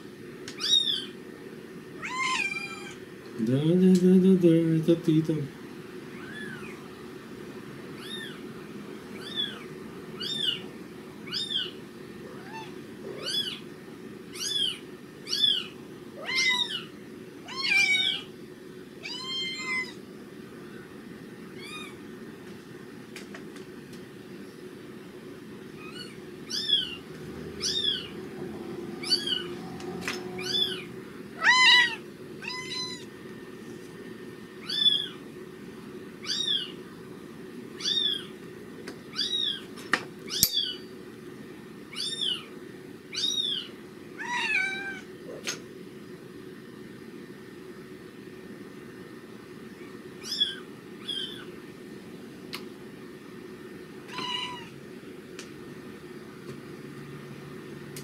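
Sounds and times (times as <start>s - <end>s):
kitten squeaking through speakers: 0.6s - 1.1s, 8.0s - 8.4s, 9.2s - 9.6s, 10.2s - 10.6s, 11.3s - 11.7s, 12.4s - 13.6s, 14.4s - 16.9s, 25.8s - 27.0s, 27.6s - 28.1s, 30.4s - 33.0s, 34.6s - 35.2s, 36.2s - 36.7s, 37.8s - 38.3s, 39.1s - 39.6s, 41.9s - 42.5s, 43.1s - 45.0s, 50.2s - 51.5s.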